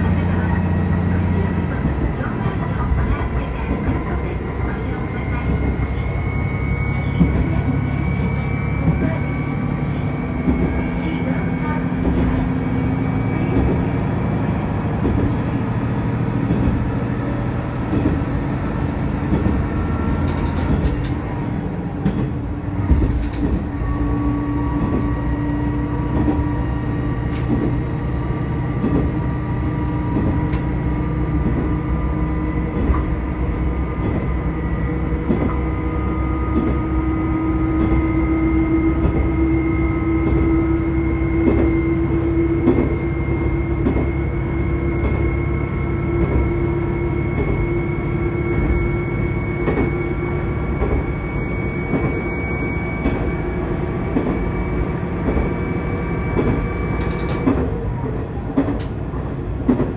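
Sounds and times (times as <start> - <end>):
railcar engine drone: 0.0 - 59.9
wheels clicking on track: 14.9 - 21.4, 56.4 - 57.8, 58.4 - 59.9.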